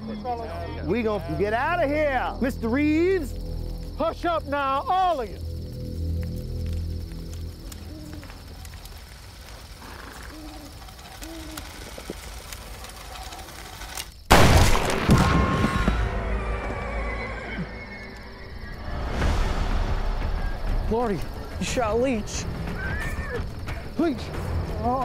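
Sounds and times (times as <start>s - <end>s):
horse whinnying: 9.8s - 11.9s, 15.6s - 18.8s, 22.7s - 23.5s.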